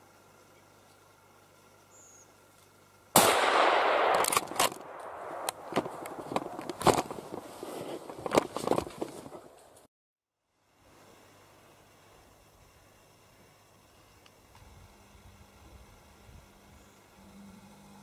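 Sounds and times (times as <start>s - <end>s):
sharp clicks: 3.2s - 6.8s
rustling: 4.1s - 9.9s.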